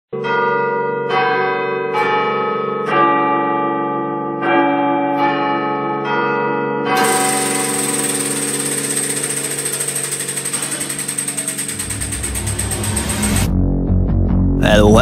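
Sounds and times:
chime bells striking a tune: 6.9 - 13.5.

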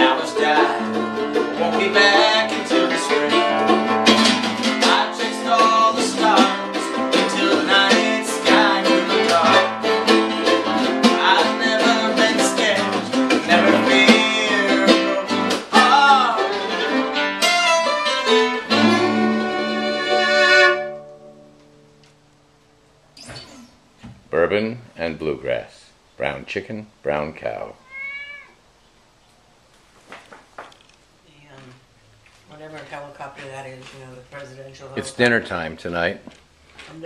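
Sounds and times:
banjo: 0.0 - 21.0
guitar: 0.0 - 25.4
fiddle: 15.7 - 21.4.

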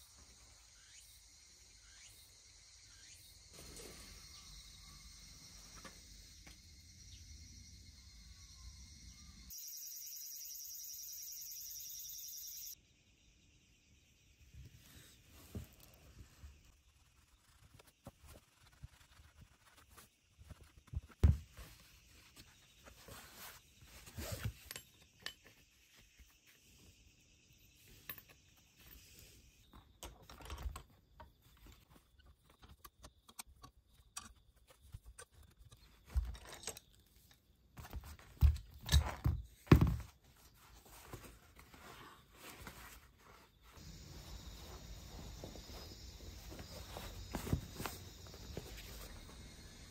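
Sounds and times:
objects rustling and knocking: 37.7 - 49.4.

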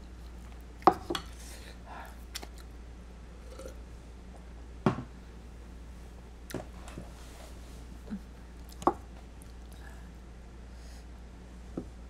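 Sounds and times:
steady low hum: 0.0 - 12.0
swallowing: 3.4 - 3.8.

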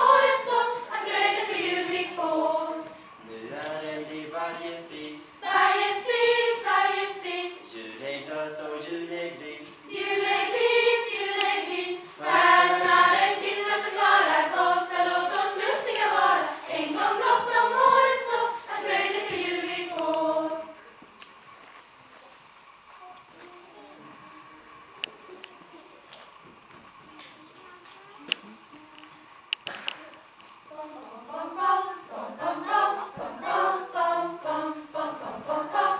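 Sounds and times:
choir of women and children singing: 0.0 - 8.2, 9.9 - 20.8, 31.1 - 35.9.

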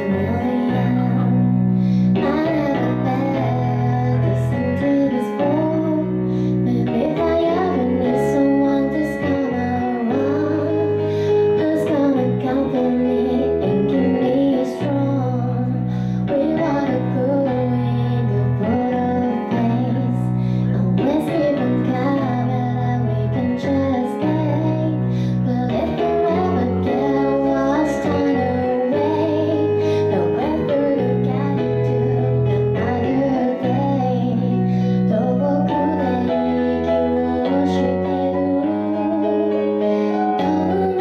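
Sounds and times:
instrumental accompaniment: 0.0 - 41.0
woman singing pop ballad: 0.0 - 41.0.

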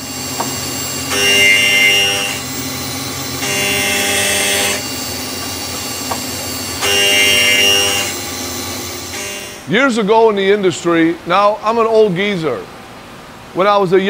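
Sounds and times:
lathe milling cutting noise: 0.0 - 10.3
machine hum: 0.0 - 13.6.

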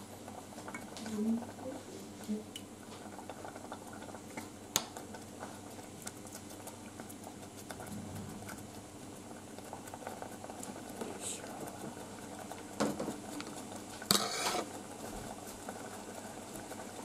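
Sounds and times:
soup simmering: 0.0 - 7.8, 8.4 - 17.0
spoon scraping a pan: 14.0 - 14.7.

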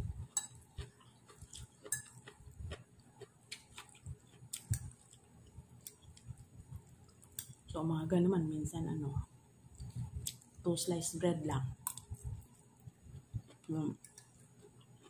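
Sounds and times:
soft chewing: 0.1 - 7.7, 9.6 - 10.7, 11.7 - 15.0.

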